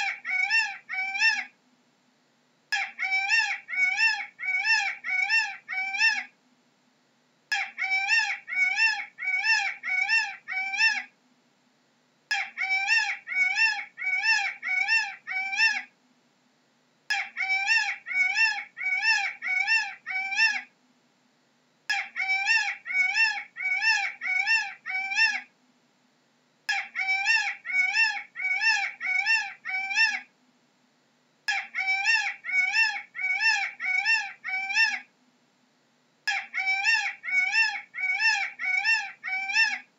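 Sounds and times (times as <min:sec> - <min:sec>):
peacock wailing calls: 0:00.0 - 0:01.6, 0:02.8 - 0:06.3, 0:07.5 - 0:11.1, 0:12.3 - 0:15.9, 0:17.1 - 0:20.7, 0:21.9 - 0:25.5, 0:26.7 - 0:30.3, 0:31.5 - 0:35.1, 0:36.3 - 0:39.9.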